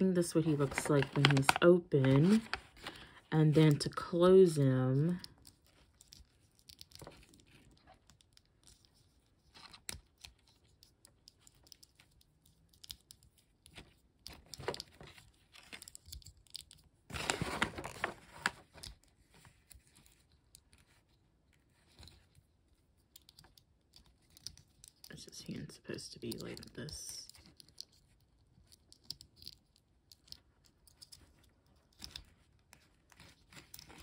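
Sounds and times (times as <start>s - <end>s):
plastic rustling: 0.0s - 3.3s, 17.1s - 20.2s.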